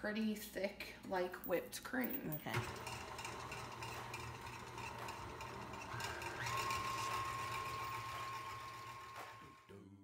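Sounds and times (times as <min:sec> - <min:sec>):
stand mixer beating cream: 0:02.6 - 0:09.6.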